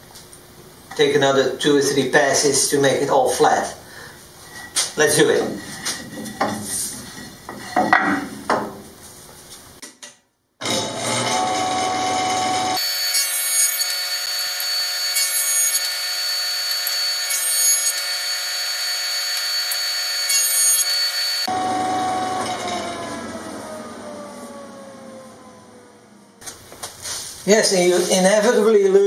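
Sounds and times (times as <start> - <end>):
jointer motor winding down: 10.6 - 13.2, 13.8 - 26.4
jointer cutting a board: 10.6 - 25.2.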